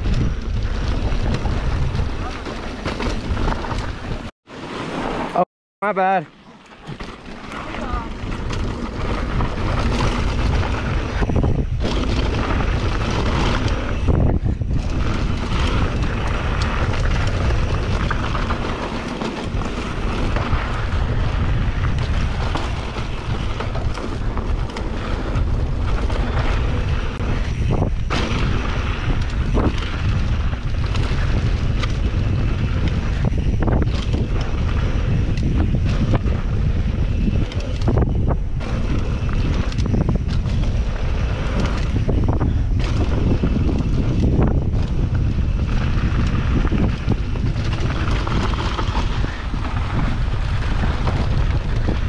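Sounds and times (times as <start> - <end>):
wind rumble on microphone: 0.0 - 4.3, 7.6 - 52.0
mountain bike on dirt trail: 0.0 - 52.0
bike knocking over bumps: 0.1 - 4.3.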